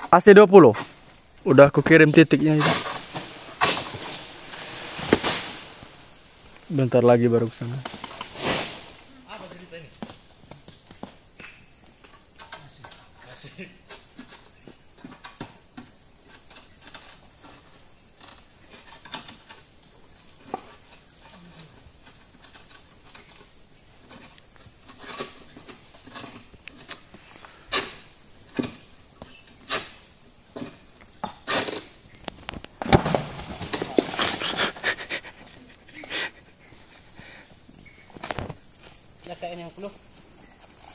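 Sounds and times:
high insect drone: 0.0 - 40.9
sickle knocking on palm fronds: 2.6 - 5.7, 32.8 - 34.3.

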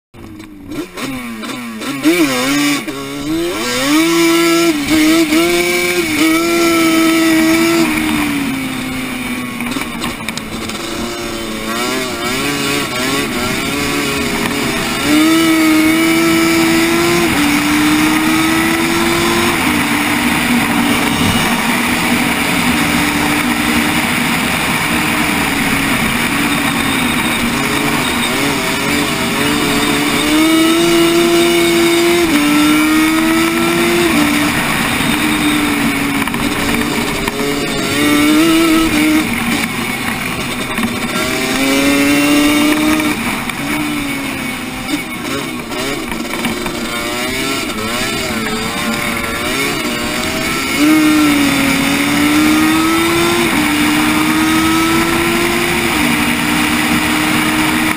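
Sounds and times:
quad bike engine revving: 0.2 - 57.9.

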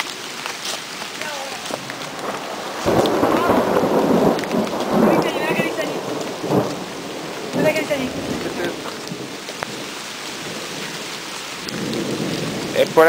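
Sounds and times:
rain on foliage: 0.0 - 13.0
thunder rumble: 1.5 - 13.0.

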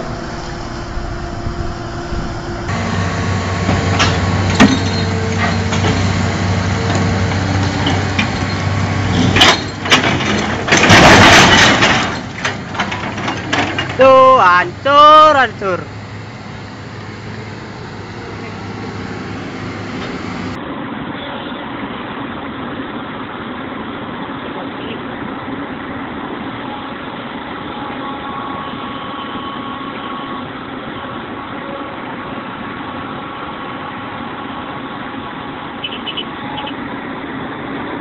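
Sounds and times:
heavy machine engine idling: 0.0 - 20.6.

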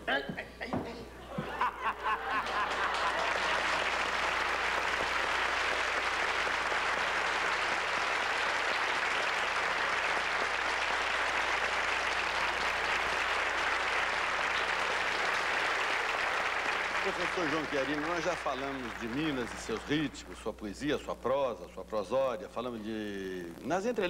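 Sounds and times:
audience applauding: 1.4 - 20.6.

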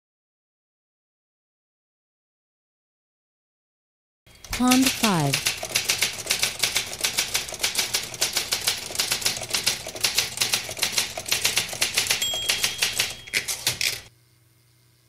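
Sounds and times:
typewriter keys clattering: 4.4 - 14.1
typewriter bell ringing: 4.5 - 14.1.

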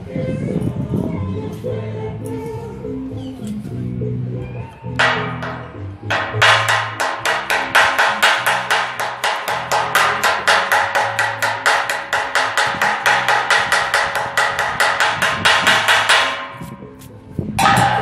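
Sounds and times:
chipping hammer tapping on steel: 5.0 - 16.4.

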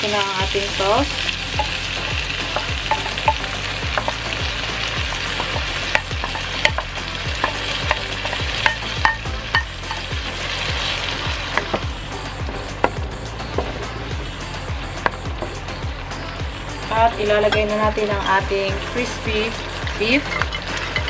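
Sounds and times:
vegetables sizzling in hot oil: 0.0 - 21.0.

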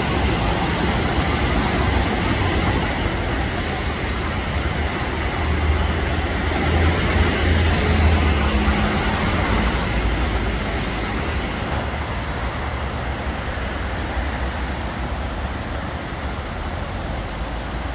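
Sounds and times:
road traffic rumble: 0.0 - 17.9.

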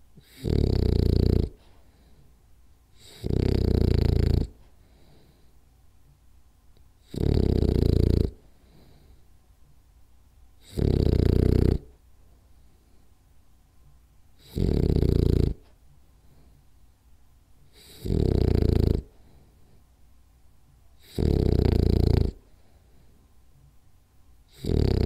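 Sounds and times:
dog breathing quietly: 0.1 - 5.8, 7.0 - 9.4, 14.3 - 16.9, 17.6 - 20.0, 21.0 - 23.7
dog snoring: 0.2 - 2.1, 3.0 - 5.4, 7.0 - 9.2, 10.6 - 12.0, 14.4 - 16.5, 17.7 - 19.4, 21.0 - 22.7, 24.5 - 25.0.

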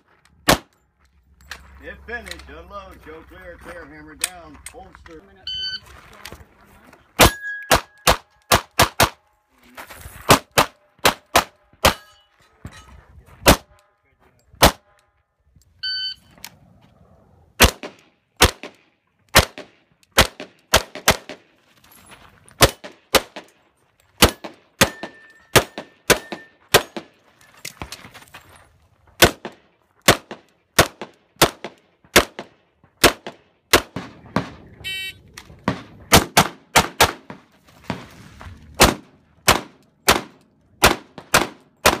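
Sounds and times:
pistol shots: 0.4 - 0.7, 7.2 - 9.2, 10.3 - 12.1, 13.4 - 13.8, 14.6 - 15.0, 17.6 - 21.5, 22.6 - 23.5, 24.2 - 27.2, 29.2 - 34.7, 35.6 - 38.0, 38.8 - 42.0
electronic shot timer beep: 15.8 - 16.3.

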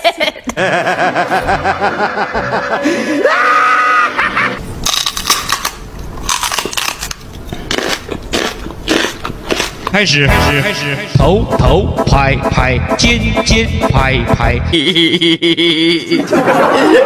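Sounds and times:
rising yowl: 3.1 - 4.6.

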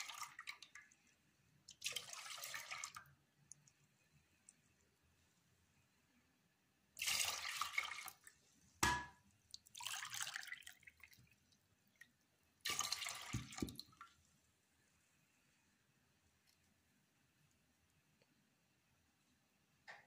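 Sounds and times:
water pouring and splashing: 0.0 - 3.2, 7.0 - 8.3, 9.5 - 14.2.

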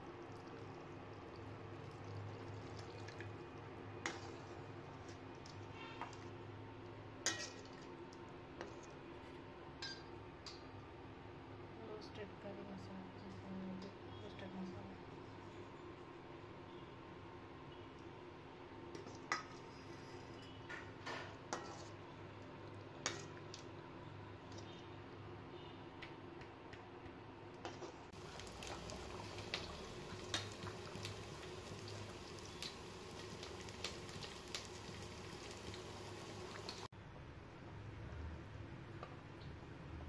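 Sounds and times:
curry simmering and bubbling: 0.0 - 6.8, 27.7 - 36.9
ladle stirring in metal pan: 7.2 - 7.8, 21.4 - 22.1.

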